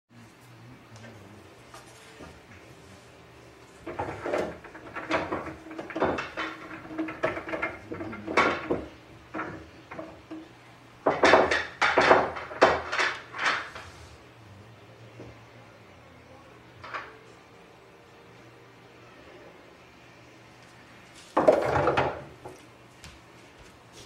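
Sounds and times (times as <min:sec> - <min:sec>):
pool balls clacking: 0:03.6 - 0:14.0, 0:16.7 - 0:17.4, 0:21.1 - 0:23.2.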